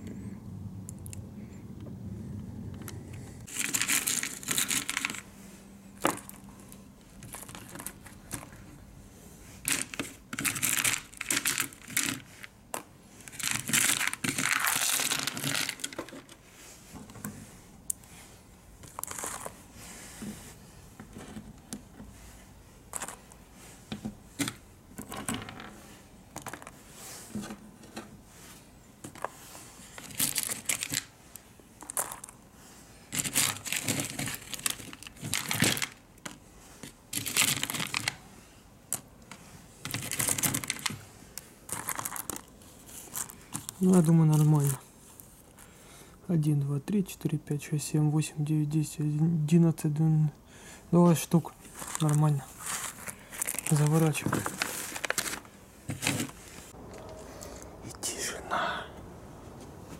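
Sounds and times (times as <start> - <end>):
small hard objects clinking: 3.5 - 5.2, 9.6 - 16.2, 18.8 - 19.6, 31.8 - 32.4, 41.7 - 42.5, 51.7 - 55.4
wrapping material crinkling: 3.5 - 5.3, 9.6 - 12.6, 13.2 - 16.4, 18.8 - 19.8, 33.1 - 36.0, 36.8 - 38.2, 41.7 - 45.6, 51.5 - 56.7.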